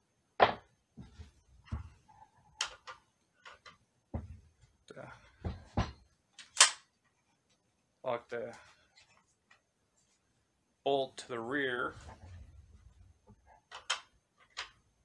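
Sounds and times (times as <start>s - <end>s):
metal parts clicking and knocking: 2.5s - 3.8s, 5.4s - 6.9s, 13.5s - 14.8s.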